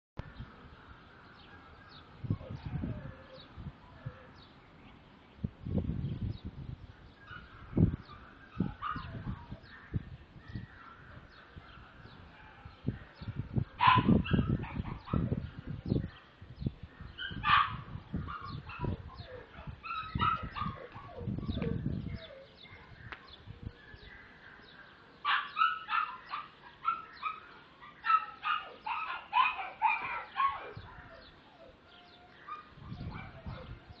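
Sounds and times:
puppy whimpering and yipping: 18.3 - 22.6, 28.1 - 34.0.

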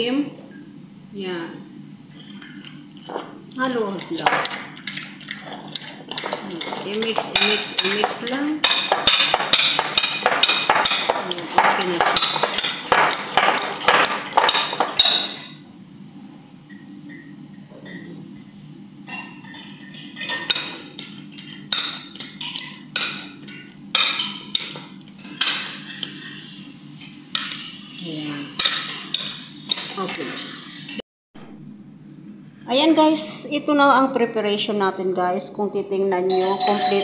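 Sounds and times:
metal whisk clinking against bowl: 4.0 - 15.5.

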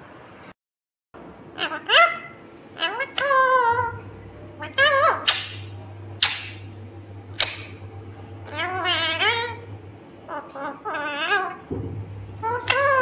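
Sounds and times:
parakeet warbling chatter: 1.5 - 4.0, 4.6 - 6.6, 7.3 - 7.8, 8.4 - 9.7, 10.3 - 11.7, 12.4 - 13.0.

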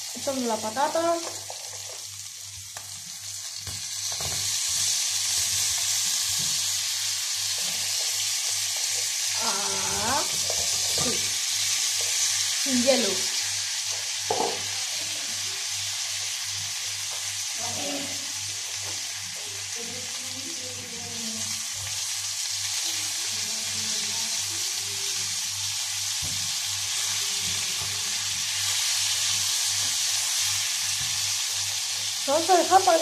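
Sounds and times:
potatoes sizzling in a pan: 0.0 - 33.0
knock: 14.3 - 14.6.

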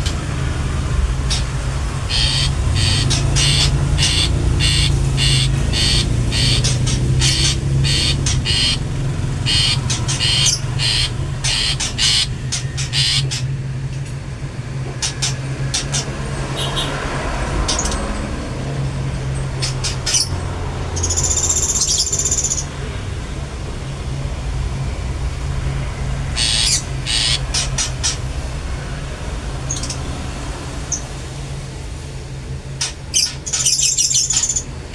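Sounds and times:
shrike calling: 1.2 - 13.6, 19.6 - 22.8, 26.3 - 28.3.

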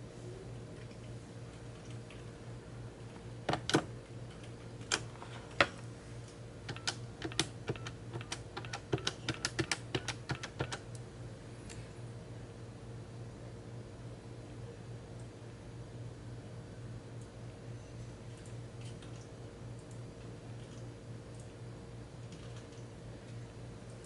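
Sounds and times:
low steady hum: 0.0 - 24.0
keyboard typing: 6.7 - 11.0.

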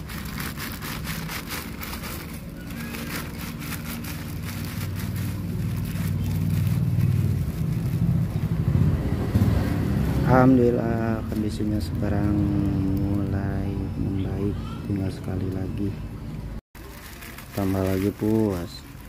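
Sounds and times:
plastic bag crinkling: 0.0 - 8.9, 10.8 - 13.6, 16.8 - 19.0
vehicle engine running: 0.0 - 14.2.

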